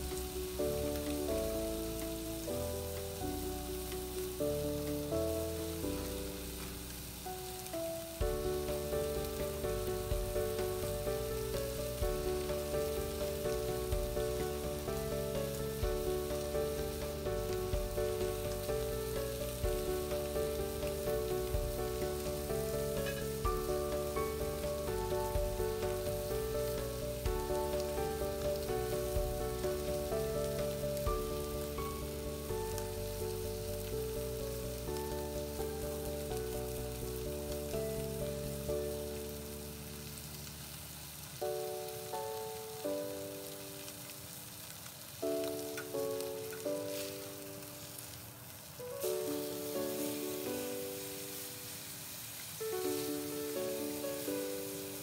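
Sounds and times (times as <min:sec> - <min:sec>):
gentle background music: 0:00.0 - 0:55.0
steaks sizzling in frying pan: 0:00.0 - 0:55.0.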